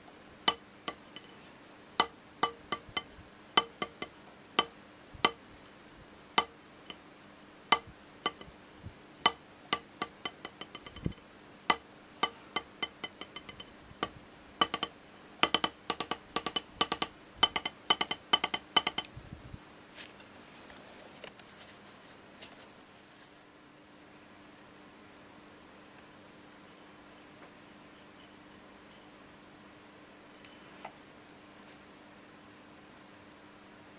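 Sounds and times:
drumstick tapping practice pad: 0.0s - 1.4s, 2.0s - 5.4s, 6.3s - 7.0s, 7.6s - 8.5s, 9.2s - 19.1s.

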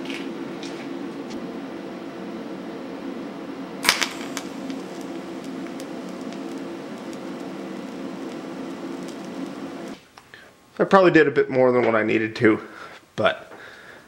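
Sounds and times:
steady low hum: 0.0s - 13.2s
welding arc crackling: 3.7s - 10.2s.

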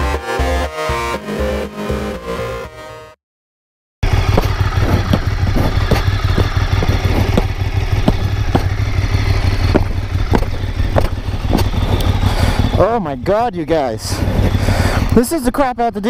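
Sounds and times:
boot footsteps on pavement: 4.0s - 12.7s
motorcycle engine idling: 4.0s - 16.0s.

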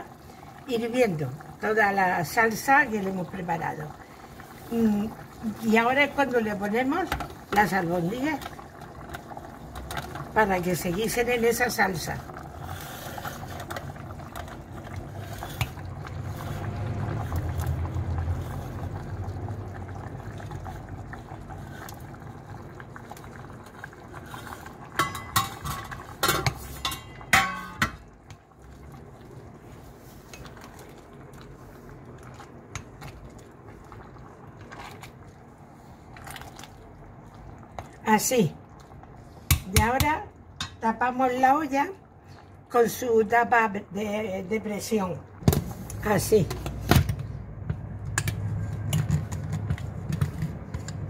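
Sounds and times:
sauce bubbling in a pot: 0.0s - 51.0s
metal spatula clinking and scraping: 25.0s - 28.0s.

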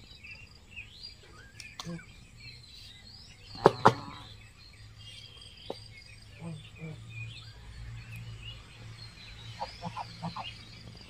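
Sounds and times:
small birds chirping: 0.0s - 11.0s
sharp clicks: 1.6s - 2.0s.

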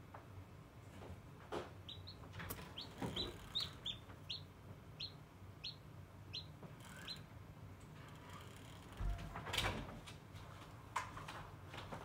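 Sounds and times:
chick peeping: 1.8s - 7.2s.

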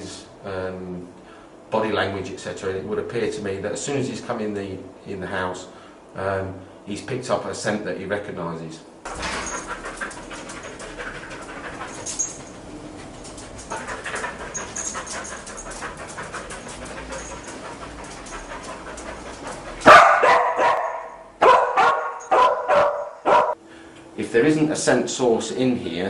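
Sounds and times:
dog moving about: 9.1s - 23.5s
dog barking loudly: 19.8s - 23.6s.

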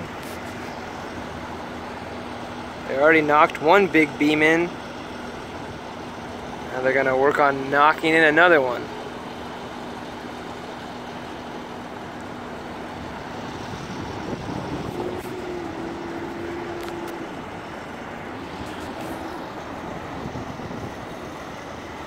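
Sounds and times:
heavy machinery droning: 0.0s - 22.0s
higher hum: 0.0s - 22.0s
low hum: 8.8s - 22.0s.

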